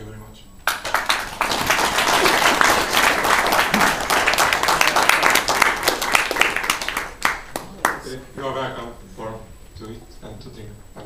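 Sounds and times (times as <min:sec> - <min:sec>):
audience applauding: 0:00.6 - 0:08.2.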